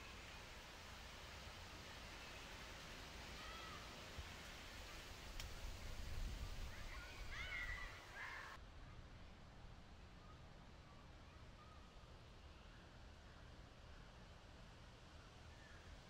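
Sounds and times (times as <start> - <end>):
dull hiss: 0.0 - 8.6
birds calling: 6.6 - 8.6.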